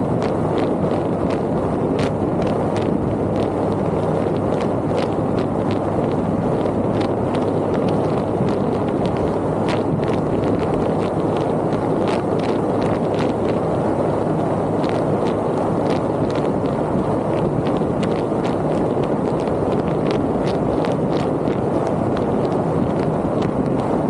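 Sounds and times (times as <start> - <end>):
vehicle road and wind noise: 0.0 - 24.0.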